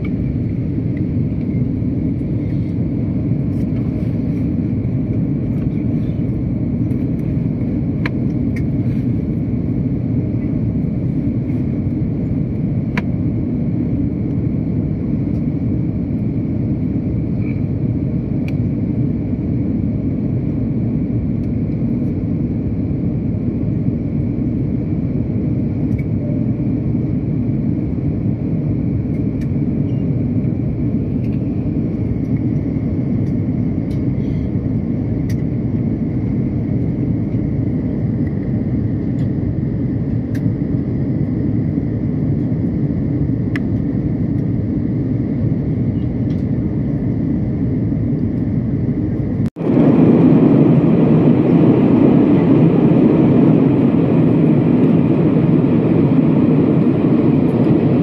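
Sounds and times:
airplane cabin engine rumble: 0.0 - 58.0
faint high whine: 29.0 - 34.7, 37.9 - 58.0.

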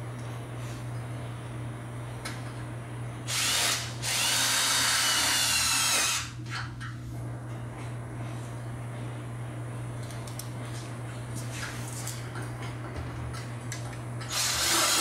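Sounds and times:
power drill driving screws: 3.3 - 6.3, 14.3 - 15.0.

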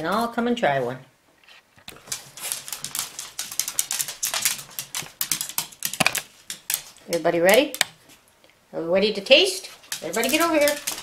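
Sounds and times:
dog claws clicking on wooden floor: 1.8 - 8.0, 9.7 - 11.0.

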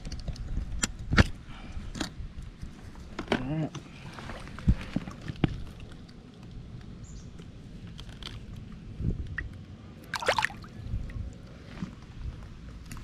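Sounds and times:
water splashing and trickling: 4.0 - 6.8, 9.3 - 11.7.

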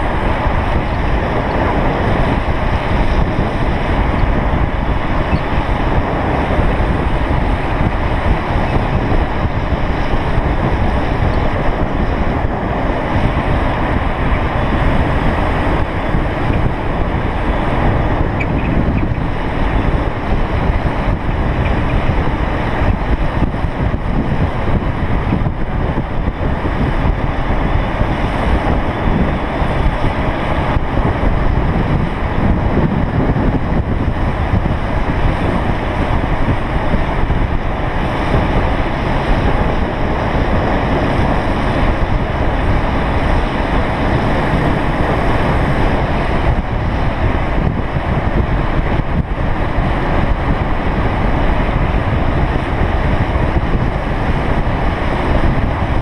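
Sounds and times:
wheels rolling on asphalt: 0.0 - 56.0
wind rushing over microphone: 0.0 - 56.0.

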